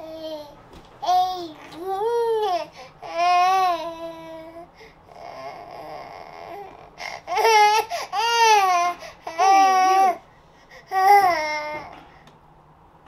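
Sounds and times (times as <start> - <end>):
baby crying and wailing: 1.1 - 10.2, 10.9 - 11.9.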